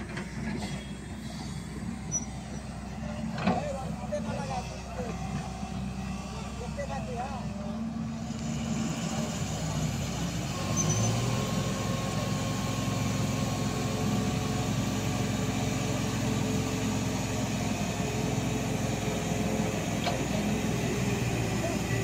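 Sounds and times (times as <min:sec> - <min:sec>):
excavator diesel engine drone: 0:00.0 - 0:22.0.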